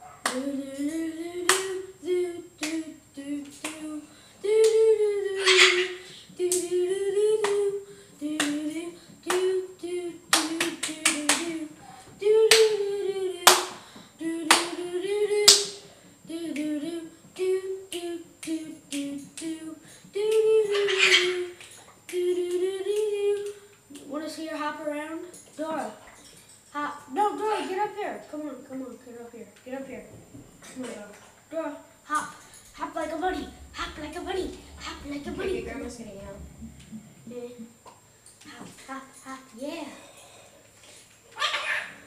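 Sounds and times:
cockatoo babbling: 5.2 - 6.0, 20.7 - 21.5
shrill squawks: 5.4 - 6.0.

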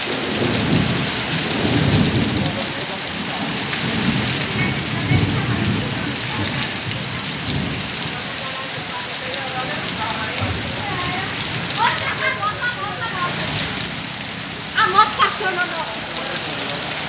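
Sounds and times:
heavy rain pouring on street: 0.0 - 17.0.

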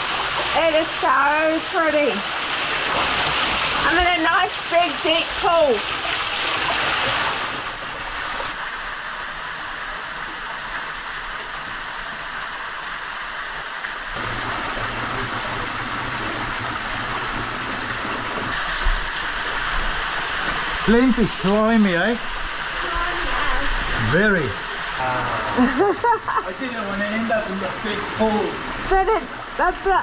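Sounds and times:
waterfall and stream rushing: 0.0 - 30.0.

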